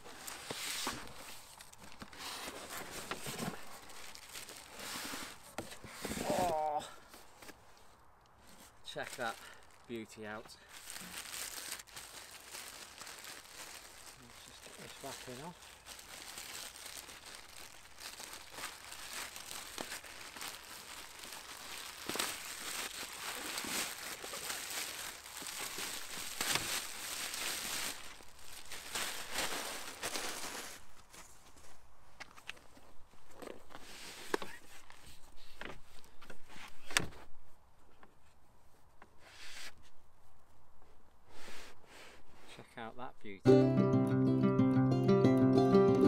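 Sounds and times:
plastic bag crinkling: 3.6s - 4.8s, 10.6s - 31.0s
sharp plastic crackles: 10.7s - 30.8s.

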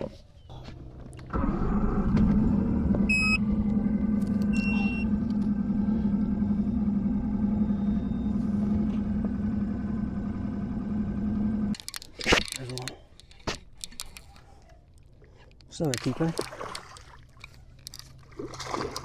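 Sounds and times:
outboard motor droning: 0.5s - 11.8s.

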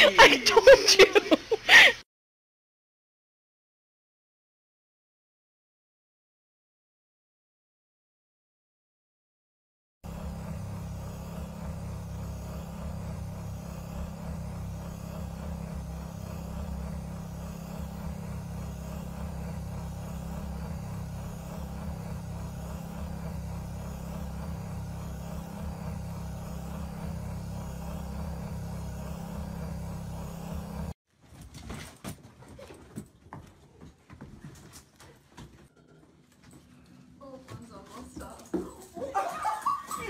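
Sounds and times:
machine motor hum: 10.0s - 31.0s
dog paws pattering on hard floor: 37.4s - 39.2s.

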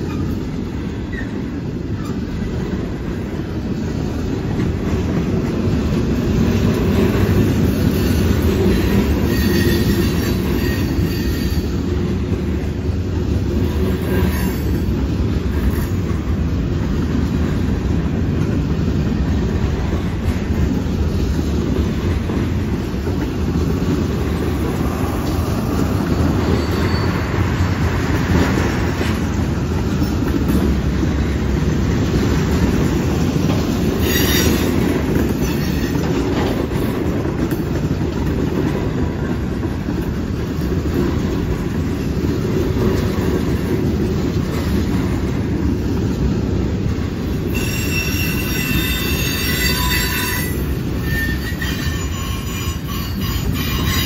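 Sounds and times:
freight cars rumbling on rails: 0.0s - 54.0s
high wheel squeals: 7.8s - 11.9s, 26.2s - 27.7s, 34.0s - 36.1s, 47.5s - 54.0s.

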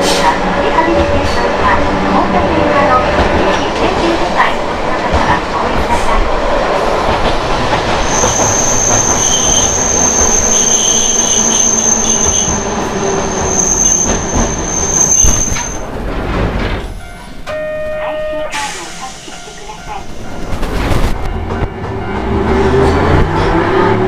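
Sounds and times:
high wheel squeal: 8.0s - 15.8s
tram motors growling: 18.7s - 24.0s.

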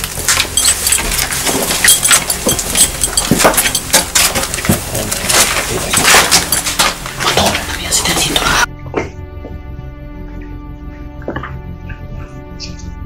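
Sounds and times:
footsteps crunching on debris: 0.0s - 9.1s.

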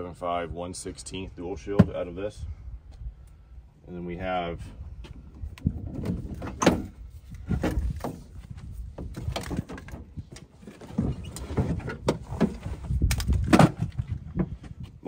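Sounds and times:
metal knocks and clunks: 5.7s - 14.8s.

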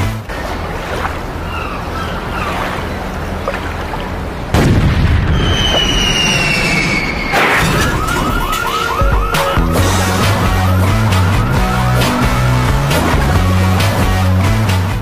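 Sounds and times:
cannon shot boom: 4.5s - 5.8s
crash: 4.6s - 8.5s
falling whistle: 5.3s - 12.5s.

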